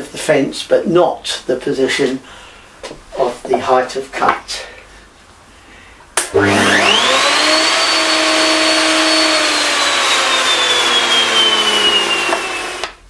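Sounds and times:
router motor whine: 6.3 - 13.0.

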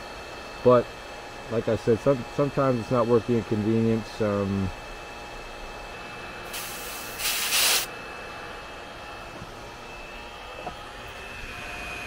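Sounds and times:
gas hissing: 6.4 - 7.9.

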